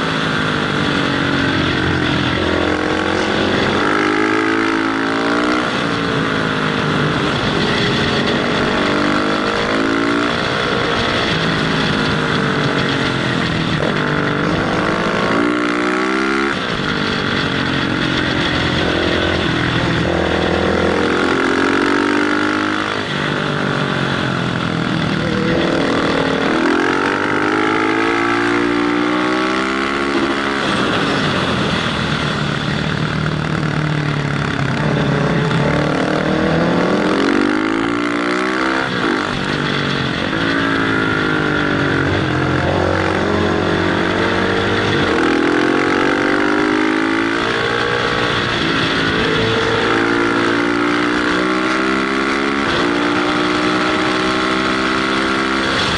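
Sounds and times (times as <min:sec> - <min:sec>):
motorcycle engine revving: 0:00.0 - 0:55.9.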